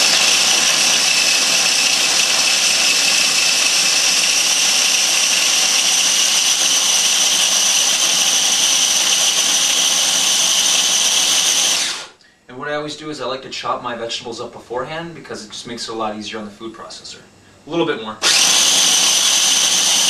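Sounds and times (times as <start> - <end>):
food processor whining: 0.0 - 12.2, 18.2 - 20.0.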